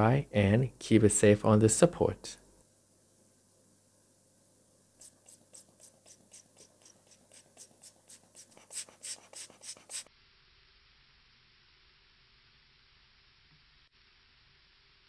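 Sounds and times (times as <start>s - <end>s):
faint steady hiss: 0.0s - 15.0s
puffs from rubber air blower: 5.0s - 10.1s.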